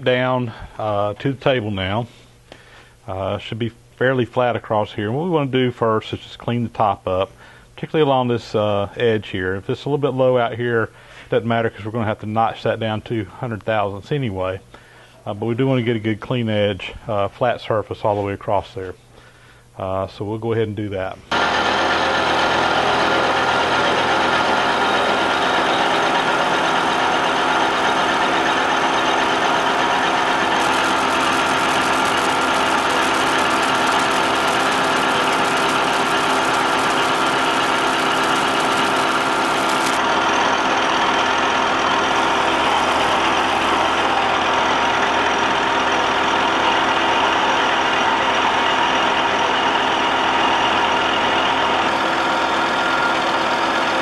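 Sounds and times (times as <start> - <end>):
bright high-pitched cutting noise: 21.3 - 45.9
milling machine hum: 21.3 - 54.0.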